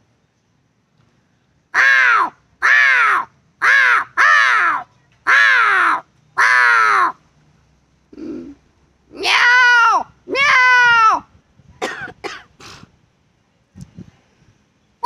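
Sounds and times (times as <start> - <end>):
man imitating crow caws: 1.8 - 7.2.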